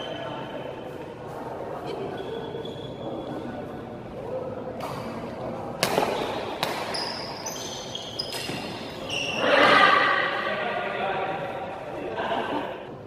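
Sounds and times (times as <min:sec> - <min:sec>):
shoes squeaking on floor: 0:01.8 - 0:03.6, 0:06.0 - 0:10.0
racket striking shuttlecock: 0:05.8 - 0:07.2.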